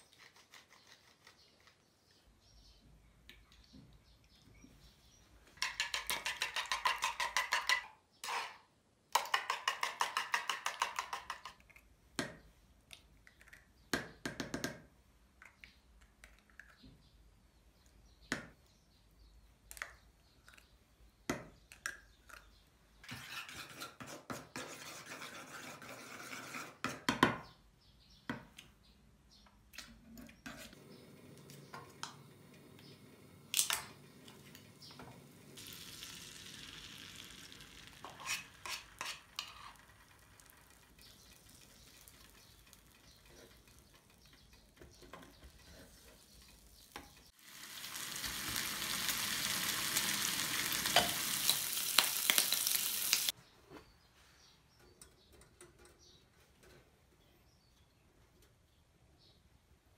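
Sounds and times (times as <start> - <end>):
spoon stirring sauce in a bowl: 5.5 - 8.6, 9.2 - 11.9, 37.9 - 47.3
chopsticks beating eggs in a bowl: 5.6 - 8.5, 9.2 - 11.6, 36.9 - 47.3.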